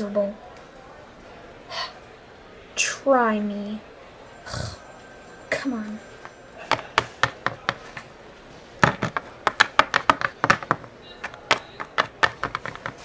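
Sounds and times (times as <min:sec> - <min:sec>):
plastic figurines tapping on table: 0:06.7 - 0:08.1, 0:08.8 - 0:13.0.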